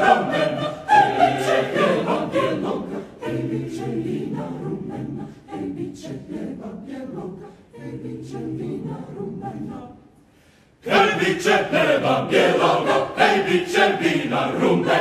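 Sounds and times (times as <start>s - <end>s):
mixed choir singing a cappella: 0.0s - 15.0s
singers breathing: 10.1s - 10.8s.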